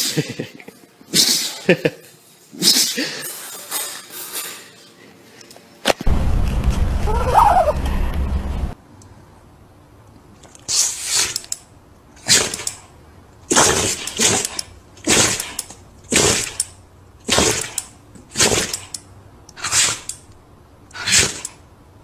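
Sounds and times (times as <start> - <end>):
dog sneezing: 12.2 - 12.6, 19.6 - 20.1, 21.0 - 21.4.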